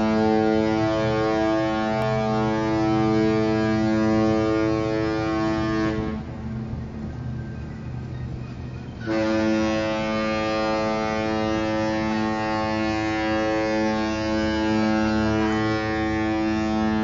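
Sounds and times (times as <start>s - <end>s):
ship horn blast: 0.0s - 6.5s, 9.0s - 17.0s.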